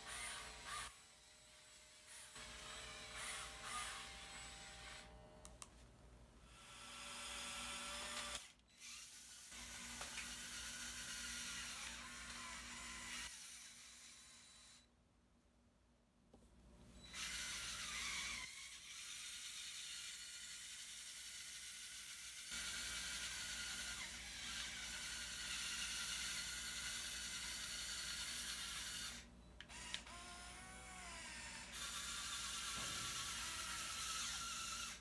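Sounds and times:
toy electric motors whirring: 0.0 - 1.0, 2.1 - 5.1, 6.5 - 14.9, 17.0 - 35.0
click: 5.4 - 5.7, 29.6 - 30.2.

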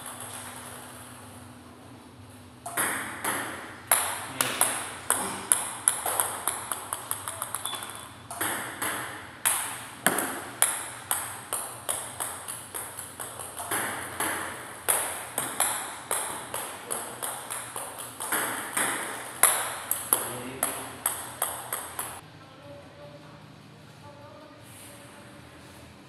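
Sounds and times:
table tennis ball hits: 0.0 - 1.1, 2.6 - 22.2
ball bouncing to rest: 2.6 - 22.2.

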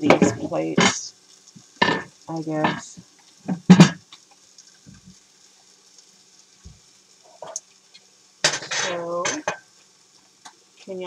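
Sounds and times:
kitchenware knocks and clinks: 8.5 - 9.6.

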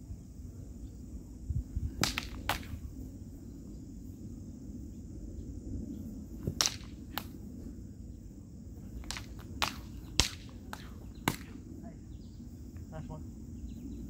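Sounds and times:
sabre blades clashing: 6.6 - 7.3, 9.0 - 11.5.

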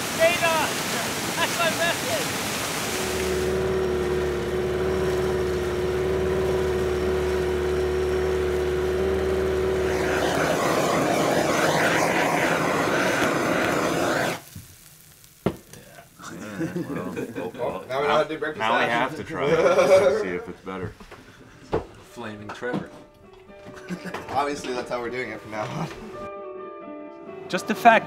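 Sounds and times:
torch flame hissing: 1.6 - 18.9
propeller motor hum with whine: 2.8 - 14.4.

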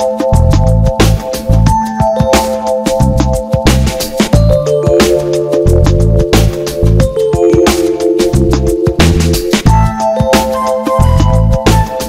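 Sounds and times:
steady drum beat: 0.0 - 12.0
heavy bass line: 0.4 - 1.8, 3.0 - 10.0, 11.0 - 11.9
synth chords: 4.3 - 12.0.

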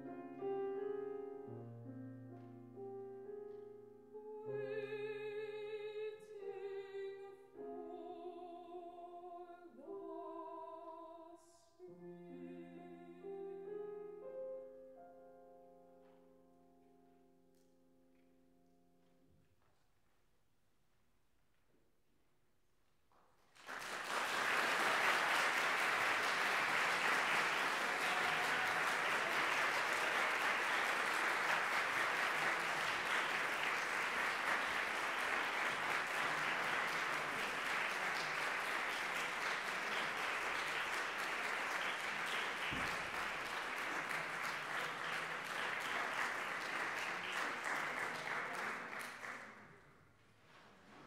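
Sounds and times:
audience applauding: 23.5 - 49.7.

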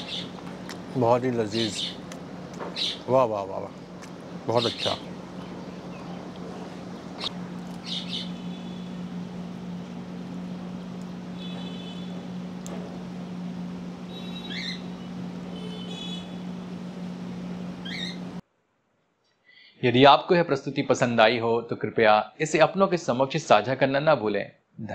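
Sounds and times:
small birds chirping: 0.0 - 9.2, 14.1 - 16.5, 17.7 - 18.4
steady low hum: 0.0 - 18.4.

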